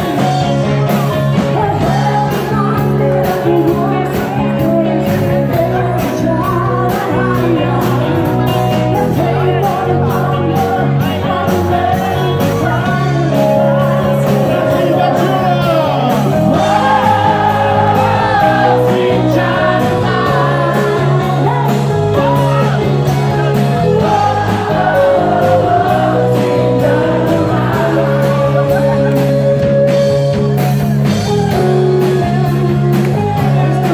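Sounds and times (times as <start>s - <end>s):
lead singer singing: 0.0s - 30.3s
electric guitar: 0.0s - 33.9s
steady drumbeat: 13.0s - 33.9s.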